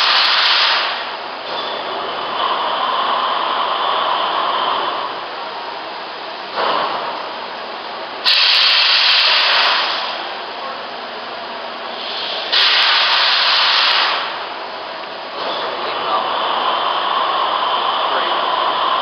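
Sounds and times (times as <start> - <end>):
blender running with hiss: 0.0 - 1.0, 8.2 - 10.2.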